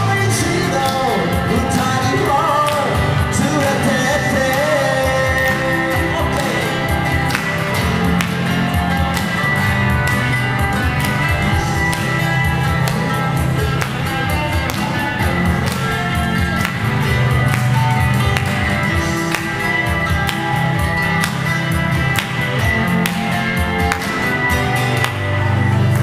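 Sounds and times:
person singing: 0:00.0 - 0:17.4
electric guitar playing: 0:00.0 - 0:26.0.

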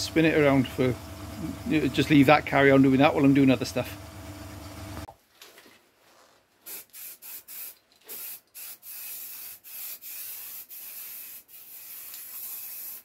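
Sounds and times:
aerosol can spraying: 0:06.6 - 0:13.0.

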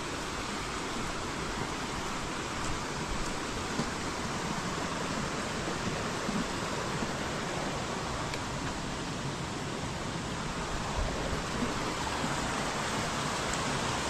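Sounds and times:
rushing stream water: 0:00.0 - 0:14.0.

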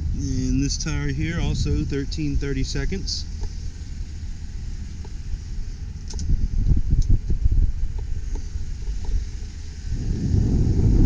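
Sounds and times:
truck engine idling: 0:00.0 - 0:11.0
wind buffeting microphone: 0:00.0 - 0:11.0.

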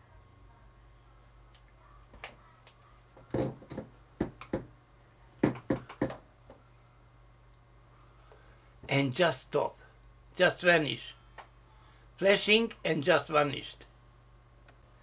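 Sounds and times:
low electrical hum: 0:00.0 - 0:15.0
sharp clicks and knocks: 0:01.6 - 0:04.7, 0:05.4 - 0:06.2.

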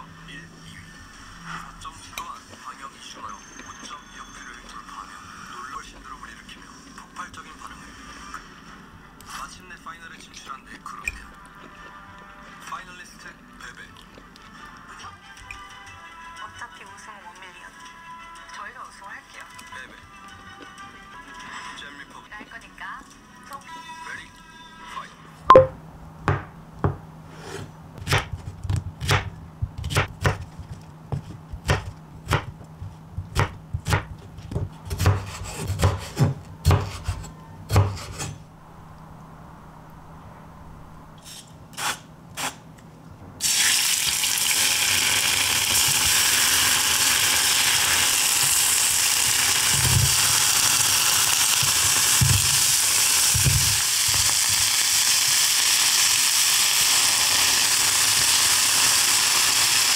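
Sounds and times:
knife chopping on wooden board: 0:26.3 - 0:38.3
food sizzling in a pan: 0:43.4 - 0:59.9.

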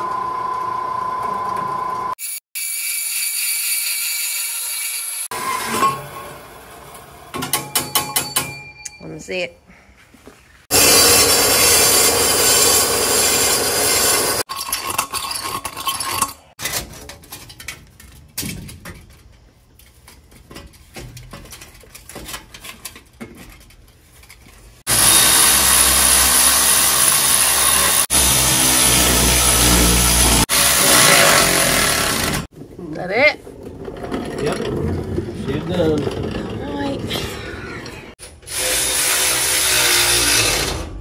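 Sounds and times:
power saw cutting: 0:10.7 - 0:14.5, 0:24.9 - 0:32.5, 0:38.2 - 0:41.0
scraping and clattering: 0:14.6 - 0:24.9, 0:33.4 - 0:38.2.

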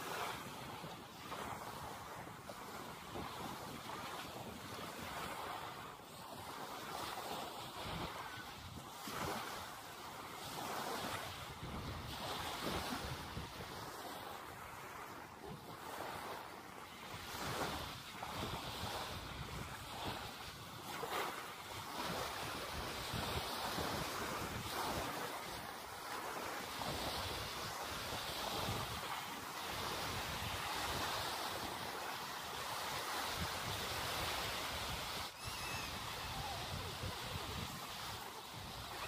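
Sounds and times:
small waves on sandy shore: 0:00.0 - 0:39.0
wind buffeting microphone: 0:32.7 - 0:39.0.

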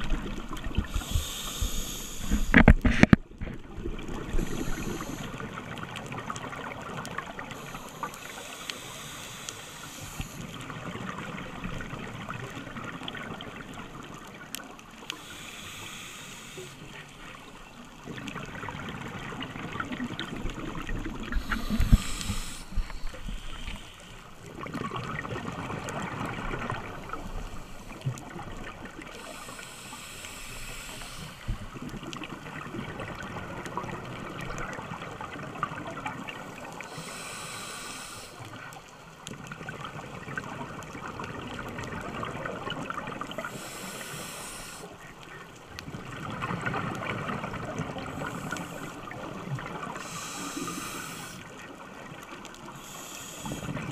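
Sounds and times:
exhaled air bubbling: 0:00.0 - 0:14.4, 0:18.0 - 0:38.2
regulator hissing inhale: 0:00.8 - 0:03.0, 0:04.3 - 0:05.5, 0:07.5 - 0:10.6, 0:15.1 - 0:17.4, 0:21.3 - 0:24.4, 0:26.6 - 0:28.1, 0:29.0 - 0:31.8, 0:36.5 - 0:38.6, 0:43.3 - 0:45.1, 0:48.0 - 0:49.2, 0:49.9 - 0:51.6, 0:52.7 - 0:53.9.

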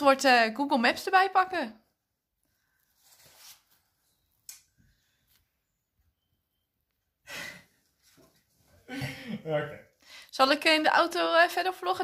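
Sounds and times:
soft rustle: 0:02.5 - 0:04.2.

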